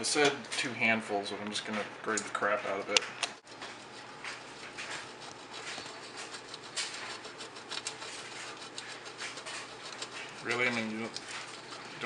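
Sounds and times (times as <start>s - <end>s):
cheese grating on metal grater: 3.4s - 12.0s.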